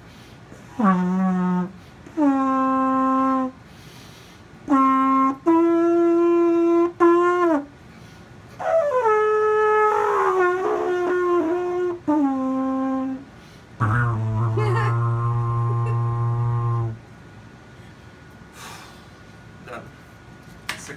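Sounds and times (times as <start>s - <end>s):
lip-buzzed horn-like notes: 0.6s - 3.6s, 4.6s - 7.7s, 8.6s - 13.2s, 13.8s - 17.0s.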